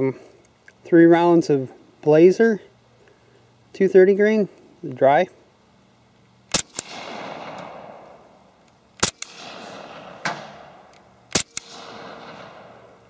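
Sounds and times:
gunshot echo: 0:06.5 - 0:13.0
suppressed pistol shots: 0:06.5 - 0:13.0
pistol action click: 0:08.6 - 0:09.4, 0:10.9 - 0:11.8.

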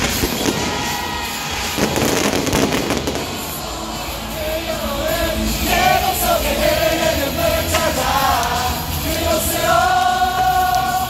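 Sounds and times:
music with singing: 0:00.0 - 0:11.0.

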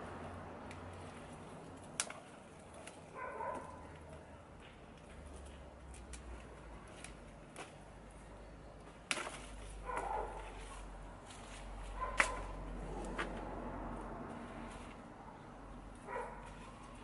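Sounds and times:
plant stems snapping: 0:01.8 - 0:03.0, 0:09.0 - 0:10.1, 0:12.1 - 0:13.4.

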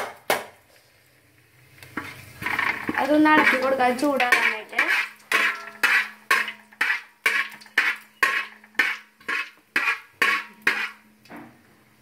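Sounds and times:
seeds frying in oil: 0:00.1 - 0:12.0
spoon scraping metal pan: 0:01.9 - 0:11.2.

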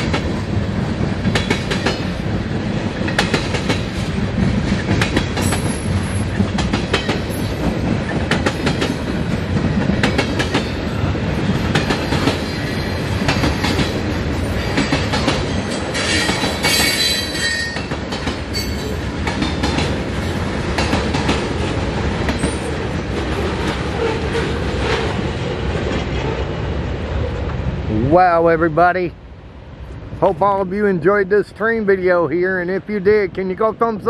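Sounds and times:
train wheels clicking over rail joints: 0:00.0 - 0:26.5.

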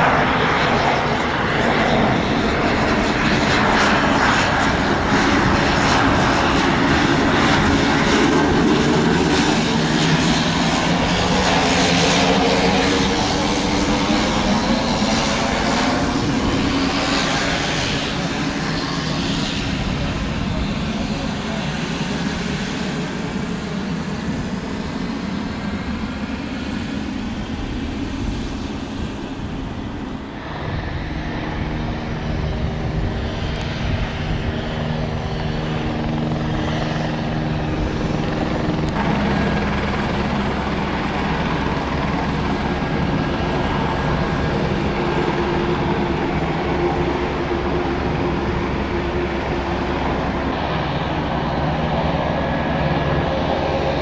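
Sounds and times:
propeller drone: 0:00.0 - 0:54.0
turbine whine: 0:00.0 - 0:54.0.

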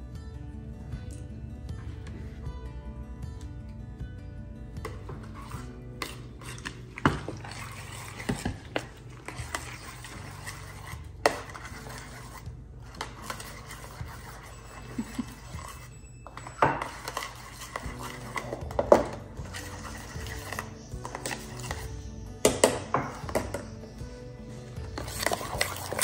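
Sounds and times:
soft background music: 0:00.0 - 0:26.0
metal spoon scraping metal tray: 0:04.8 - 0:23.6, 0:24.8 - 0:26.0.

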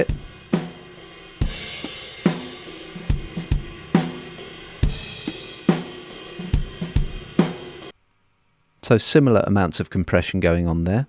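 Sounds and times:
compressed drum kit groove: 0:00.0 - 0:07.9
cymbals and hi-hat wash: 0:00.0 - 0:07.9
kick and snare beat: 0:00.0 - 0:07.9.

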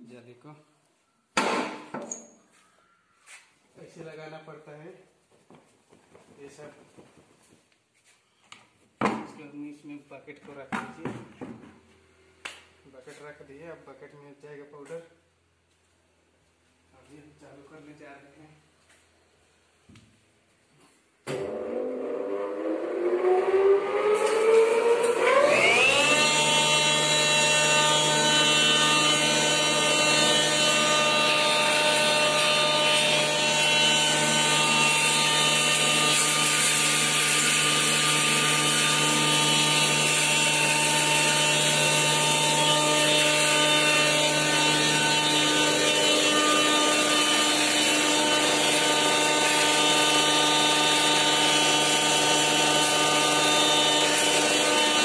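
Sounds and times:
electric pulverizer whining: 0:21.3 - 0:55.0.

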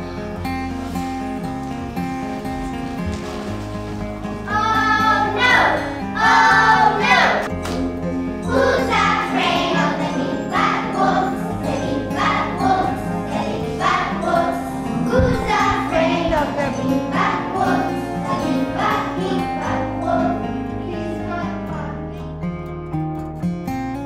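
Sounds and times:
instrumental accompaniment with bass: 0:00.0 - 0:24.0
children singing: 0:04.4 - 0:07.5, 0:08.4 - 0:22.2.

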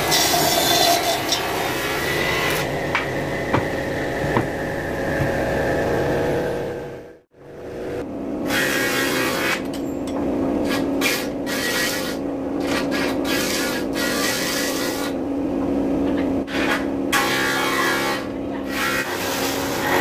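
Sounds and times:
woodworking machine humming: 0:01.2 - 0:09.6
timber knocks: 0:02.9 - 0:04.6.

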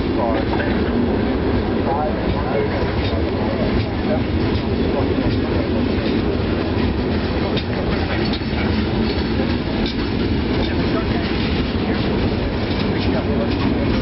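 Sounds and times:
freight train wheels rumbling: 0:00.0 - 0:14.0
wheels clicking over rail joints: 0:02.3 - 0:14.0.

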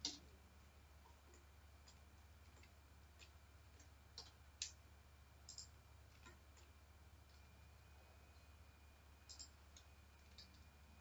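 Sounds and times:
low steady hum: 0:00.0 - 0:11.0
mouse and keyboard clicks: 0:09.3 - 0:10.6.

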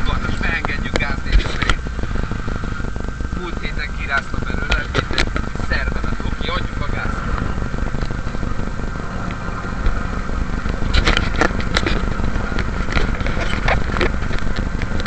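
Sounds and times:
vehicle engine low rumble: 0:00.0 - 0:15.0.

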